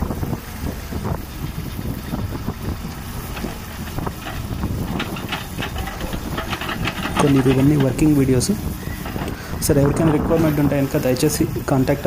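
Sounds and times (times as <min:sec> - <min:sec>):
tractor engine running: 0:00.0 - 0:12.0
backhoe digging soil: 0:02.8 - 0:12.0
short clattering knocks: 0:03.3 - 0:10.7.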